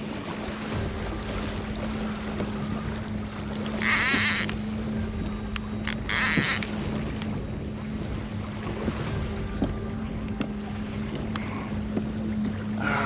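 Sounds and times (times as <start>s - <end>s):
low hum: 0.0s - 13.0s
water noise: 0.0s - 13.0s
wind: 0.0s - 13.0s
fishing reel buzzing: 3.8s - 4.6s, 5.8s - 6.7s.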